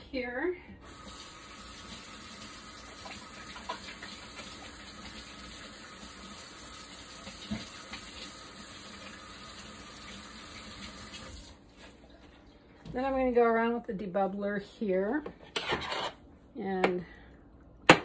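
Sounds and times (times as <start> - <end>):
faucet running: 0.8 - 11.7.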